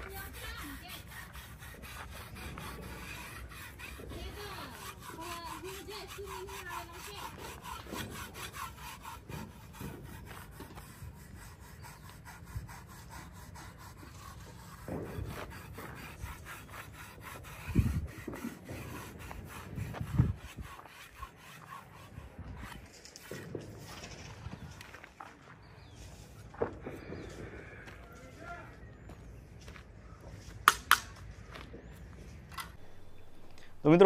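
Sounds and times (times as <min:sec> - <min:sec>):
hand rubbing horse's coat: 0:00.0 - 0:24.8, 0:32.8 - 0:34.0.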